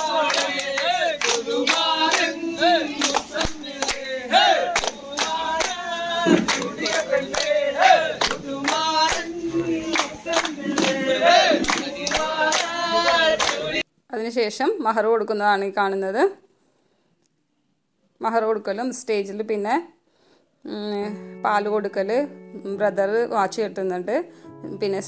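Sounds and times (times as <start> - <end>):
men singing in chorus: 0.0 - 13.8
rhythmic hand-clapping: 0.0 - 13.8.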